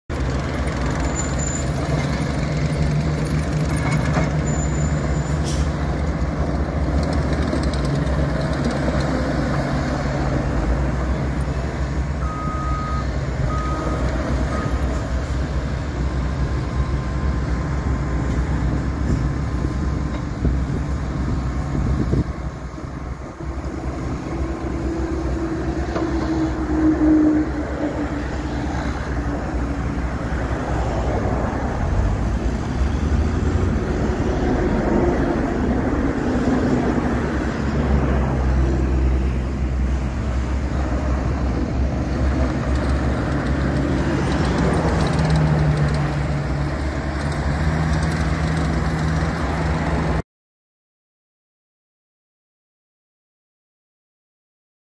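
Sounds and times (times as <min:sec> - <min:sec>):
diesel engine running: 0:00.1 - 0:50.2
short beeps: 0:12.2 - 0:14.9.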